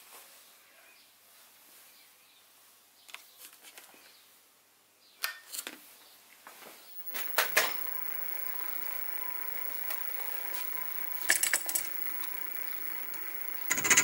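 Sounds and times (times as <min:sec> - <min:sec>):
mill motor whining: 0:06.9 - 0:14.0.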